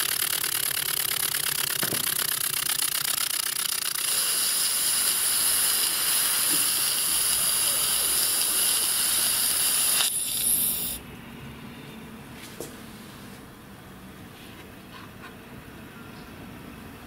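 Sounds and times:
steam engine hissing: 3.9s - 11.0s.

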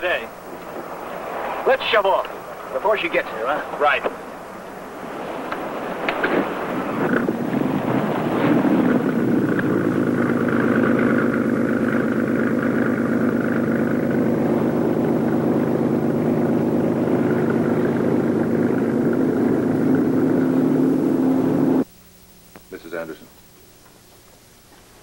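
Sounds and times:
boat engine running: 2.3s - 21.8s.

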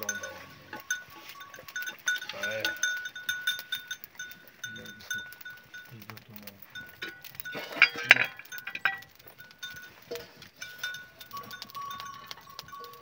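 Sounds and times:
sheep bells clinking: 0.0s - 13.0s.

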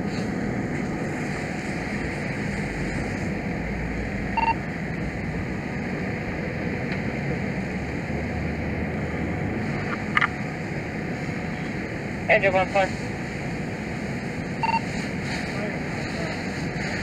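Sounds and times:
fire engine running: 0.0s - 17.0s
short radio beep: 14.6s - 14.9s.

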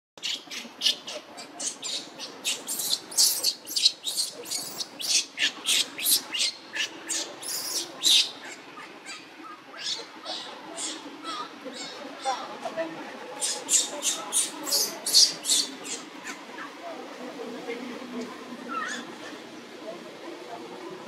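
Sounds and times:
baby monkey squealing: 0.2s - 12.4s, 13.4s - 16.4s, 18.7s - 19.1s.

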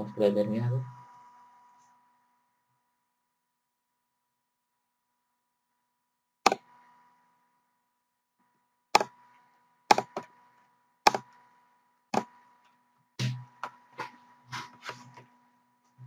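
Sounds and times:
faint steady high tone: 0.0s - 3.2s.

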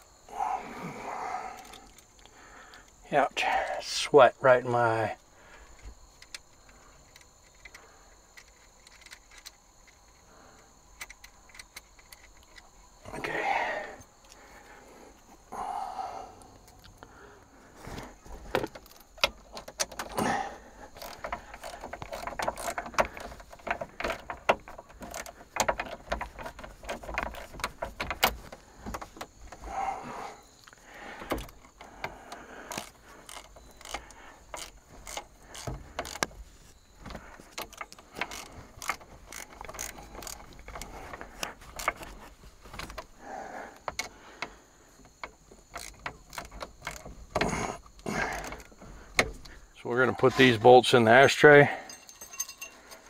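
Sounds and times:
metal tools clicking and jingling: 50.1s - 53.0s.

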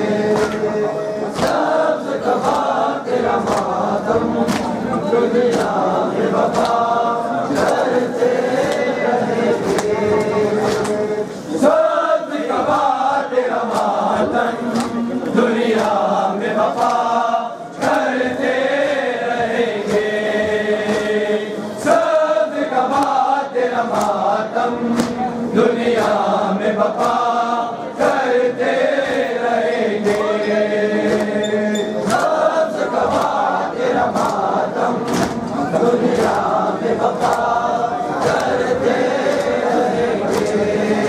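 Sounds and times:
men chanting a lament in chorus: 0.0s - 41.0s
hands slapping chests: 0.2s - 1.8s, 2.4s - 4.9s, 5.5s - 5.8s, 6.4s - 6.9s, 7.5s - 8.0s, 9.6s - 11.1s, 13.7s - 14.0s, 14.7s - 15.0s, 15.7s - 16.0s, 16.7s - 17.1s, 22.9s - 23.2s, 23.9s - 24.2s, 24.9s - 25.2s, 27.0s - 27.3s, 30.0s - 30.4s, 31.0s - 31.4s, 32.0s - 32.4s, 33.0s - 33.5s, 34.1s - 36.5s, 37.1s - 37.6s, 38.2s - 40.6s.

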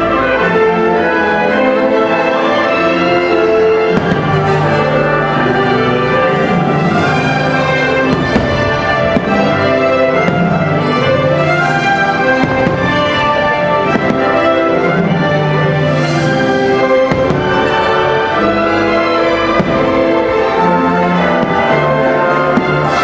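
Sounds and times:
orchestral music: 0.0s - 23.0s.

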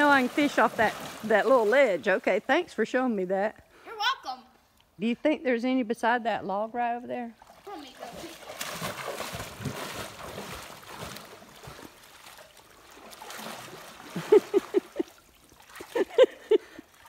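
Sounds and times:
water sloshing around legs: 0.0s - 2.5s, 7.4s - 17.0s.

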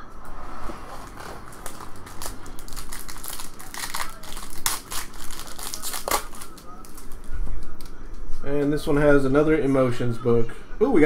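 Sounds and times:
foil wrapper crinkling: 1.0s - 8.0s.

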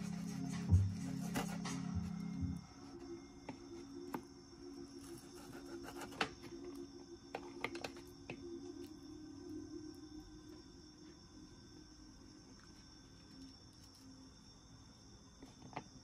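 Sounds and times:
music: 0.0s - 12.5s
faint steady hum: 0.0s - 16.0s.

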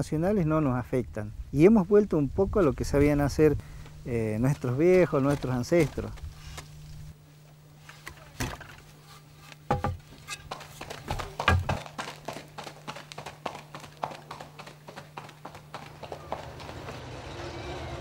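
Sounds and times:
horse hooves clip-clopping: 9.7s - 17.5s.

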